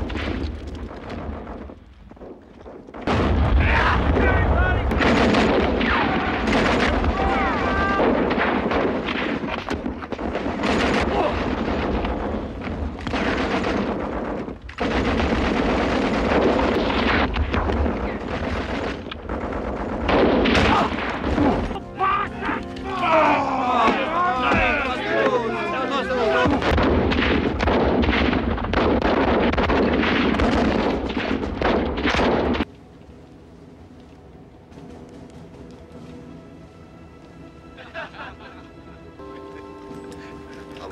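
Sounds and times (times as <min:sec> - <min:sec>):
explosions: 0:00.0 - 0:21.8, 0:26.4 - 0:32.7
rapid gunfire: 0:01.0 - 0:07.4, 0:08.0 - 0:21.7, 0:26.4 - 0:32.6
rifle and machine gun fire: 0:03.0 - 0:21.8, 0:26.4 - 0:32.6.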